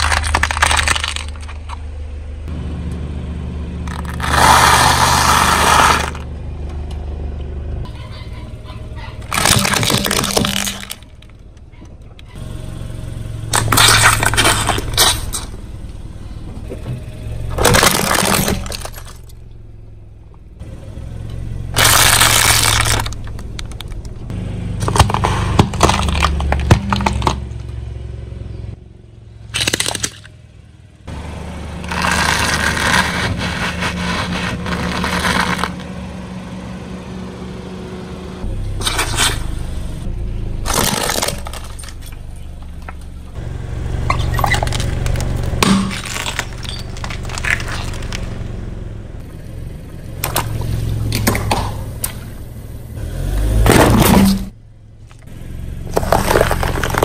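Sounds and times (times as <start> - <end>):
tyre crushing objects: 0.0 - 1.8, 9.3 - 11.2, 17.6 - 19.2, 24.8 - 27.6, 40.7 - 42.1, 53.6 - 54.5, 55.8 - 57.0
car engine running: 0.0 - 57.0.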